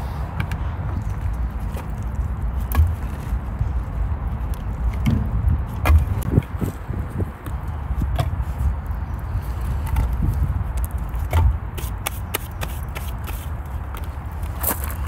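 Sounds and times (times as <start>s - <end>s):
logs knocking and clunking: 2.6s - 3.4s, 4.5s - 6.6s, 9.8s - 11.7s.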